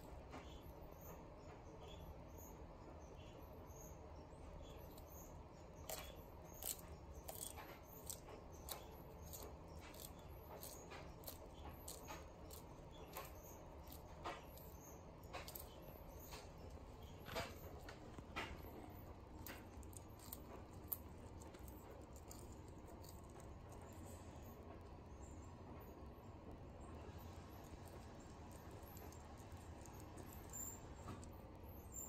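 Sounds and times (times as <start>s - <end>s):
tortoise crunching grass: 5.8s - 24.4s.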